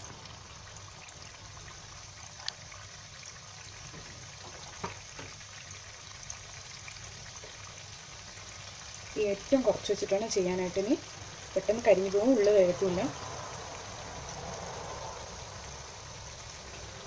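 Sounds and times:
dough sizzling in hot oil: 0:00.0 - 0:17.0.

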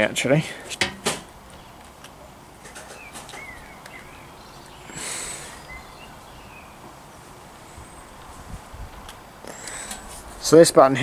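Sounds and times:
outdoor background hiss: 0:00.0 - 0:11.0
faint bird chirps: 0:02.8 - 0:06.8.

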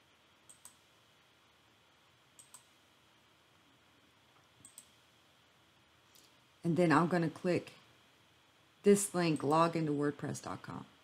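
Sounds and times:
faint room hiss: 0:00.0 - 0:11.0
computer mouse clicking: 0:00.5 - 0:00.9, 0:02.4 - 0:02.8, 0:04.6 - 0:05.0.

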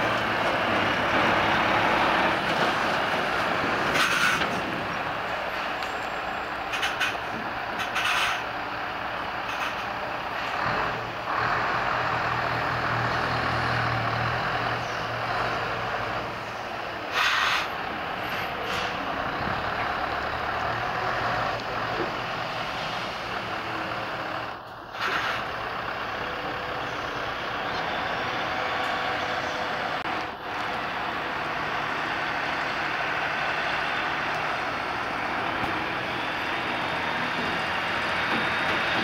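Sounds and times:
lorry diesel engine running: 0:00.0 - 0:39.0
air brake hisses: 0:17.1 - 0:17.8.

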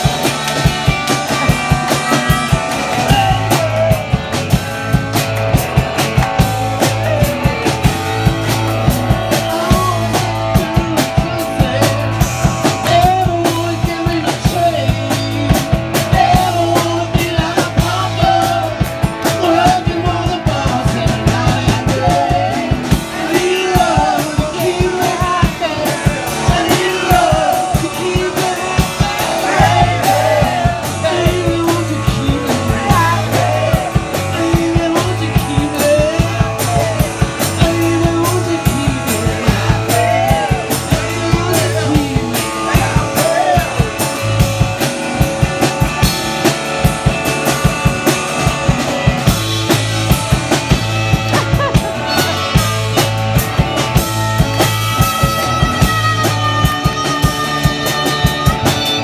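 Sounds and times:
person singing: 0:00.0 - 0:04.6, 0:06.0 - 0:44.8
drum kit beat: 0:00.0 - 0:59.0
electric guitars: 0:00.0 - 0:59.0.

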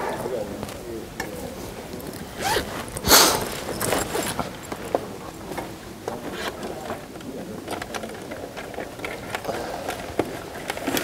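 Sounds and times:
light clicks and rustles: 0:00.6 - 0:11.0
backpack rasp: 0:02.4 - 0:04.4.

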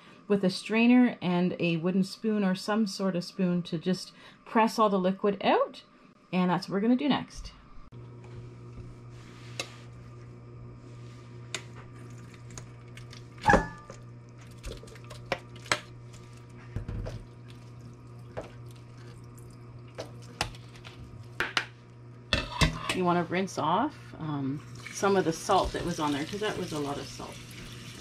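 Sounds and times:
low steady hum: 0:00.0 - 0:28.0
metal bowl clanking: 0:13.4 - 0:14.0.

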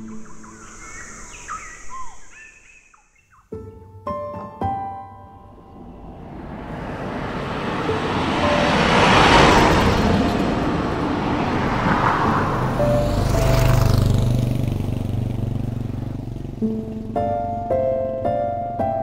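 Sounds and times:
deep engine rumble: 0:05.3 - 0:18.7.

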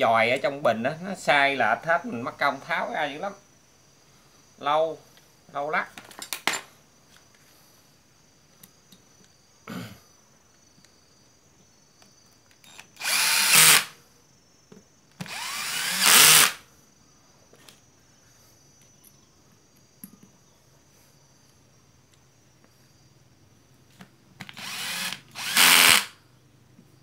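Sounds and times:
cordless drill running: 0:12.7 - 0:14.0, 0:15.2 - 0:16.6, 0:24.4 - 0:26.2.

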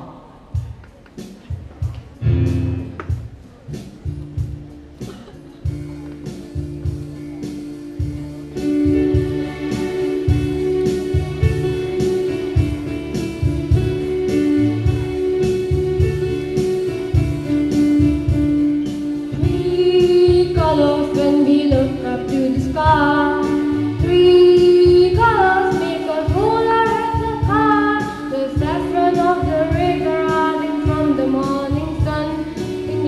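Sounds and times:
backing track with steady beat: 0:00.0 - 0:33.0
child singing into a microphone: 0:19.4 - 0:33.0.

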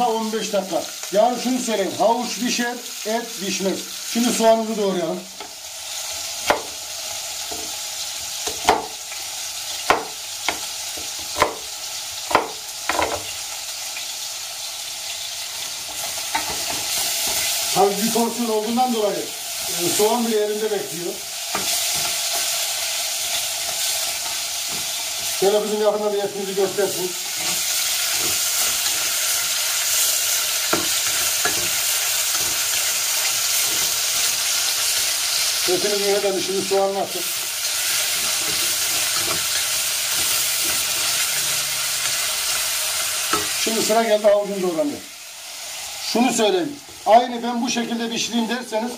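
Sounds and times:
meat sizzling in hot oil: 0:00.0 - 0:48.9.

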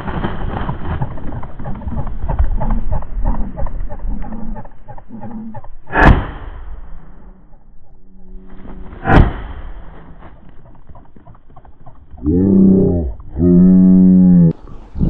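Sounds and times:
shotgun shots: 0:05.9 - 0:06.6, 0:09.0 - 0:09.9.

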